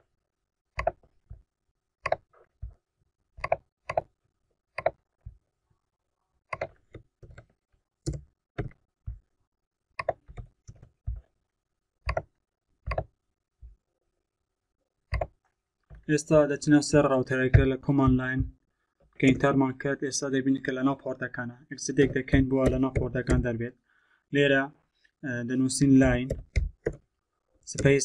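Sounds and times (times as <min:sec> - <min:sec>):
mouse and keyboard clicks: 0:00.8 - 0:01.0, 0:02.0 - 0:02.3, 0:03.4 - 0:04.1, 0:04.8 - 0:05.0, 0:06.5 - 0:07.4, 0:10.0 - 0:10.9, 0:12.9 - 0:13.1.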